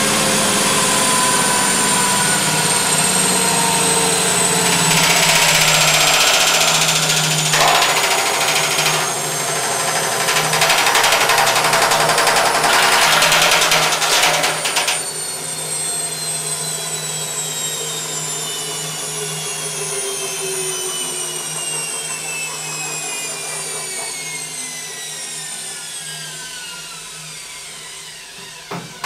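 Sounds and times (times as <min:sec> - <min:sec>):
washing machine drum rattling: 0:04.6 - 0:15.2.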